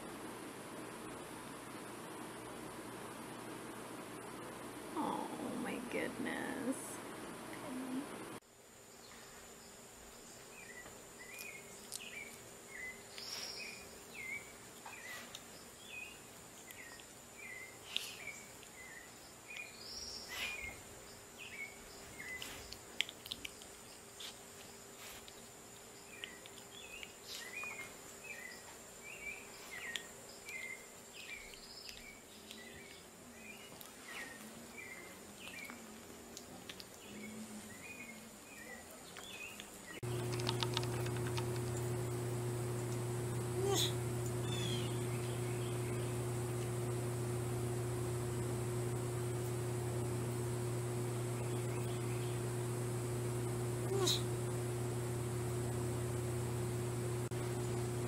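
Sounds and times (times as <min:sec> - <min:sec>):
steady high-pitched whine: 0:40.0 - 0:58.0
chirping animal calls: 0:43.7 - 0:46.2.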